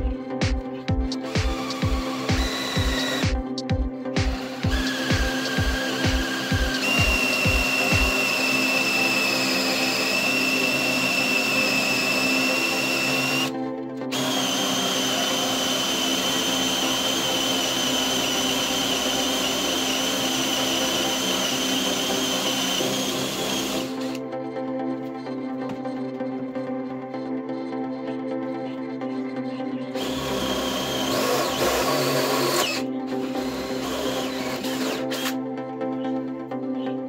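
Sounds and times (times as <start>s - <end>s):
background music: 0.0s - 37.0s
cordless drill boring wood: 1.2s - 3.4s, 4.2s - 24.2s, 30.0s - 35.4s.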